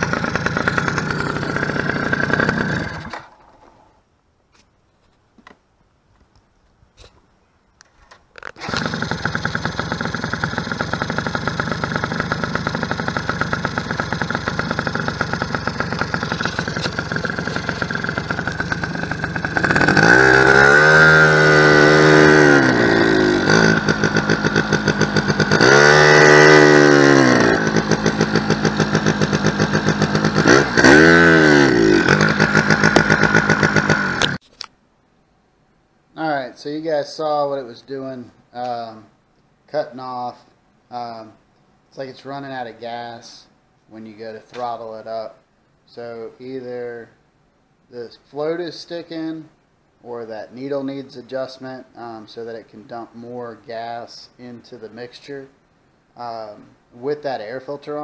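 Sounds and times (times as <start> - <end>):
two-stroke engine idling and revving: 0.0 - 3.4, 8.6 - 34.4.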